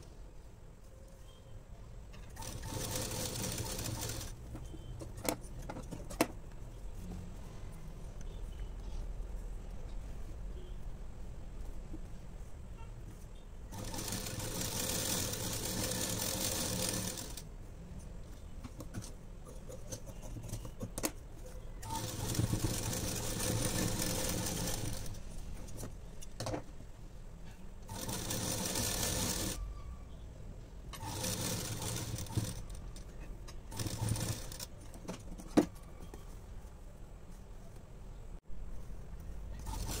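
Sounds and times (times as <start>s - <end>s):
sewing machine stitching: 2.2s - 5.4s, 13.7s - 17.4s, 21.8s - 25.2s, 27.9s - 29.6s, 30.9s - 34.8s, 39.6s - 40.0s.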